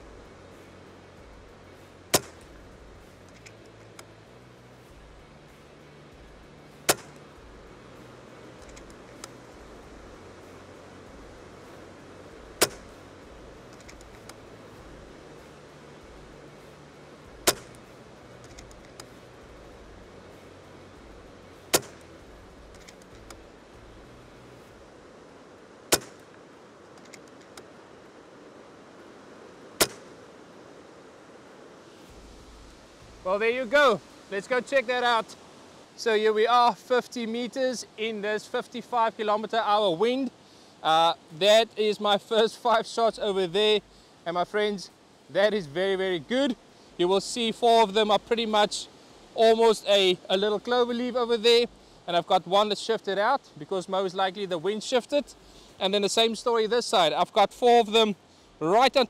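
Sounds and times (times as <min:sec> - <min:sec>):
steady wind noise: 0:00.0 - 0:59.0
air rifle shots: 0:29.8 - 0:30.1.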